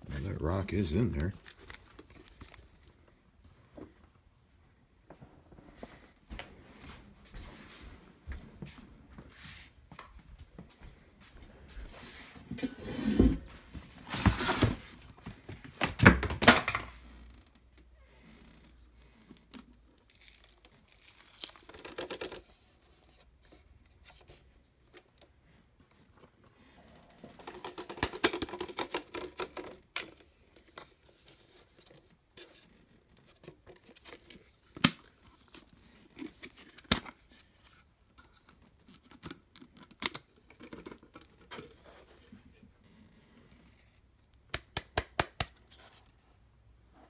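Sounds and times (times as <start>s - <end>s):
plastic bag crinkling: 20.1s - 22.2s.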